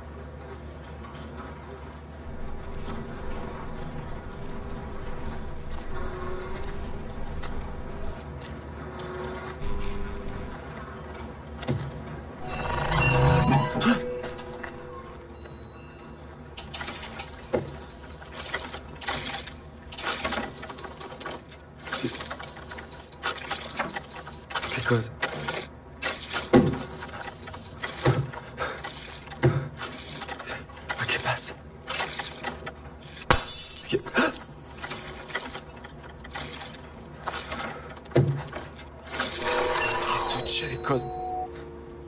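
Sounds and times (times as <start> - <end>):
mechanical whirring and clattering: 0.0 - 42.0
steady tone: 12.4 - 16.1
clockwork mechanism clicking: 16.5 - 33.3.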